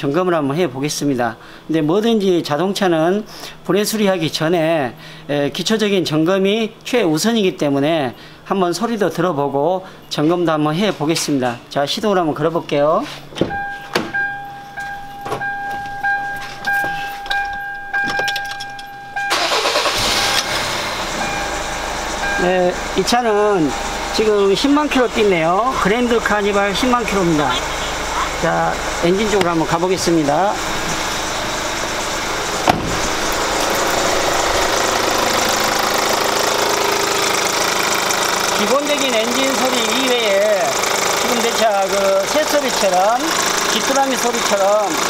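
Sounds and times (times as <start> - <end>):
car door clicks and knocks: 13.4 - 16.0, 32.6 - 33.7
car engine cranking and starting: 13.4 - 45.0
electronic warning tone: 13.5 - 19.4
fast chirping from engine pulley: 19.3 - 20.3.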